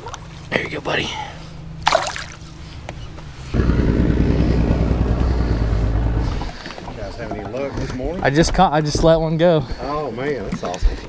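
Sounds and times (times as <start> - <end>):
fish splashing into water: 1.8 - 2.4
motorboat engine running: 2.4 - 8.5.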